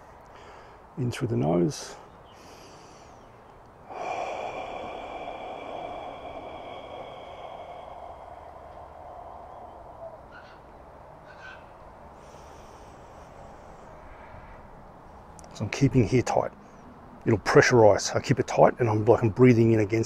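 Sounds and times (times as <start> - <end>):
man breathing out: 0.3 - 0.9, 2.2 - 10.4, 12.1 - 14.1.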